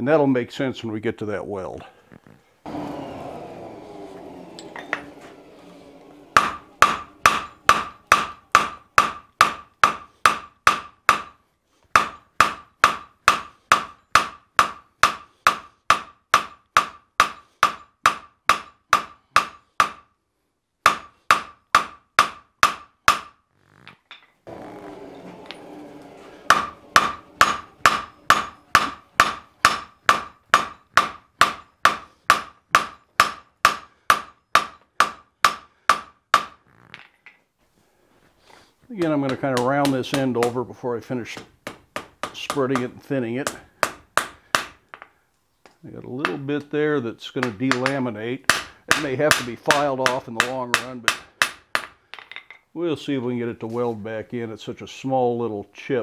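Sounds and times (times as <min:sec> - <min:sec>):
hammer striking iron on anvil: 0:06.3 - 0:11.3, 0:12.0 - 0:20.0, 0:20.9 - 0:23.3, 0:25.4 - 0:36.6, 0:41.7 - 0:45.1, 0:47.4 - 0:52.4.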